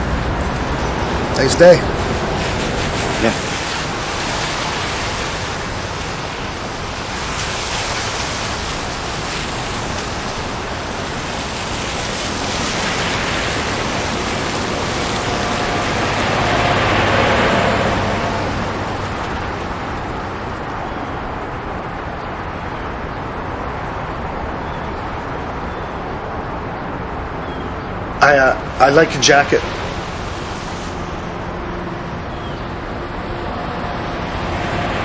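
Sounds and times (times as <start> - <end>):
vehicle passing: 0.0 - 20.7, 28.2 - 35.0
outdoor traffic noise: 0.0 - 35.0.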